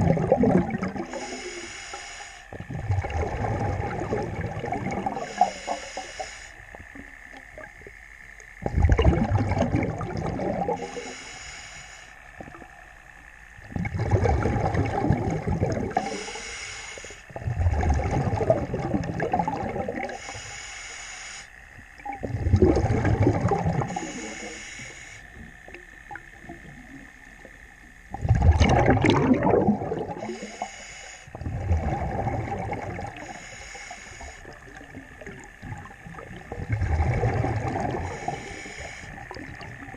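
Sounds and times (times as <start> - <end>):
bubbling exhalations underwater: 0.0 - 1.2, 2.5 - 5.4, 8.6 - 10.9, 13.7 - 16.2, 17.3 - 20.2, 22.0 - 24.3, 28.1 - 30.4, 31.3 - 33.3, 34.4 - 39.9
hissing regulator inhalations: 1.0 - 2.7, 5.1 - 7.0, 10.8 - 12.6, 15.9 - 17.4, 20.1 - 21.9, 23.8 - 26.9, 30.0 - 32.2, 33.0 - 35.6, 37.6 - 39.9.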